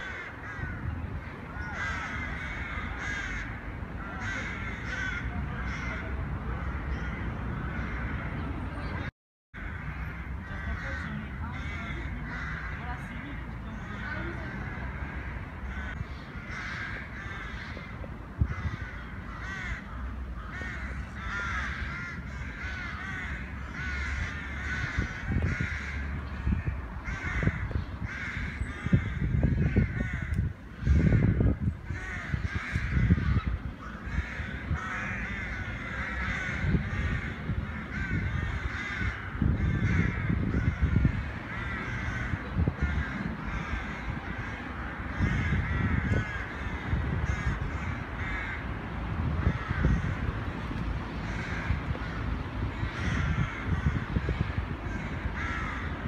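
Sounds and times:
many birds calling: 0.0 - 48.7, 49.3 - 56.0
wind rumble on microphone: 0.0 - 56.0.

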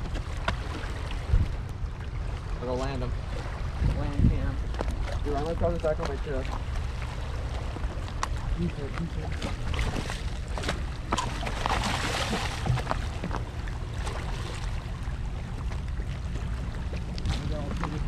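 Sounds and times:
fish splashing at water surface: 6.4 - 18.0.

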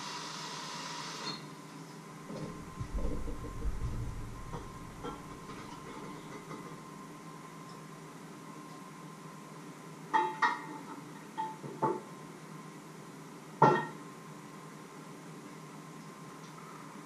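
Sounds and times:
faint hum: 2.3 - 6.5.

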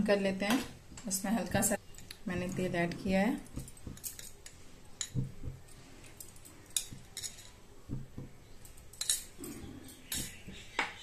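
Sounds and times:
metal spoon clinking on glass: 3.6 - 5.3, 6.2 - 7.6, 8.6 - 10.4.

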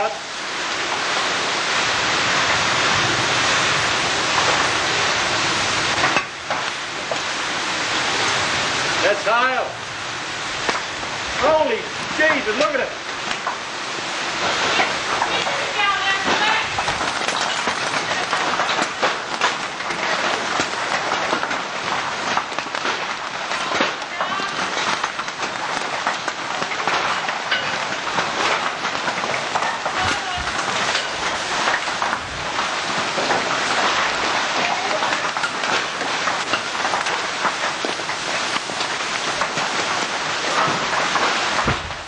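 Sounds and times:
heavy hail and rain: 0.0 - 42.0.

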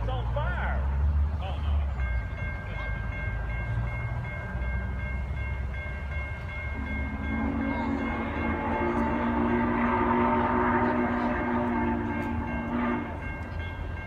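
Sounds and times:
crossing bell ringing: 0.0 - 14.0
distant steam whistle: 6.7 - 13.6.

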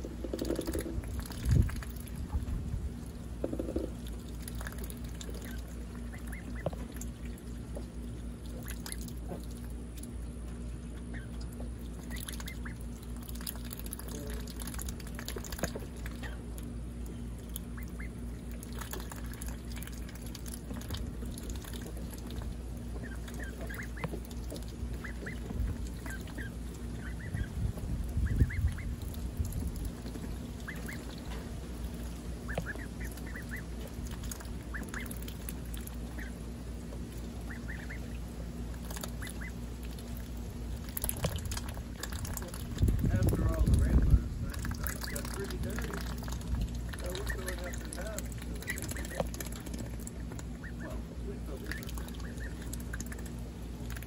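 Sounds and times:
wind rumbling on microphone: 0.0 - 3.9, 25.3 - 26.2, 27.0 - 31.7, 41.0 - 46.9
bills dabbling in water: 0.0 - 54.0
young ducks calling softly: 0.0 - 54.0.

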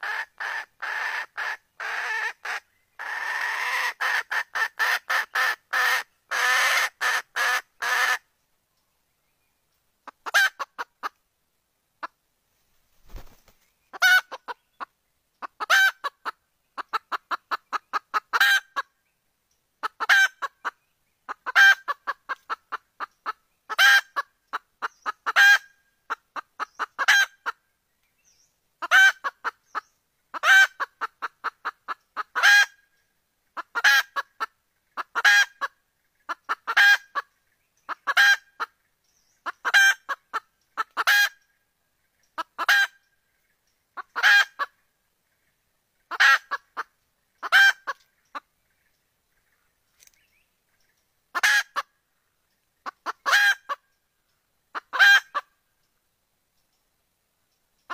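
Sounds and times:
hen clucking: 0.0 - 8.2, 10.0 - 11.2, 13.1 - 18.9, 19.8 - 27.6, 28.8 - 32.8, 33.5 - 38.8, 39.4 - 41.5, 42.1 - 43.1, 43.9 - 44.8, 46.0 - 48.8, 51.3 - 52.0, 52.8 - 53.8, 54.7 - 55.6.

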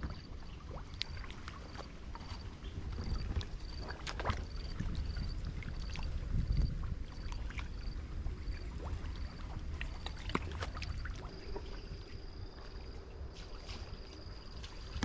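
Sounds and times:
small clicks and splashes: 0.0 - 11.4
wind rumbling on microphone: 0.0 - 15.0.

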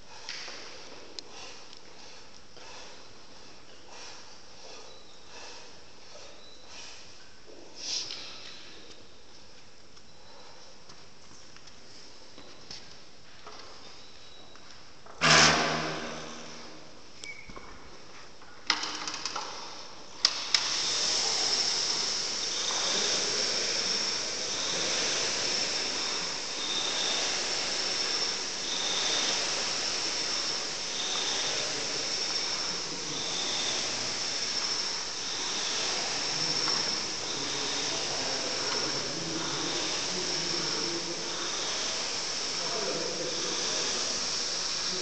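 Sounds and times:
rowing machine fan whooshing: 15.2 - 17.2, 20.2 - 45.0.

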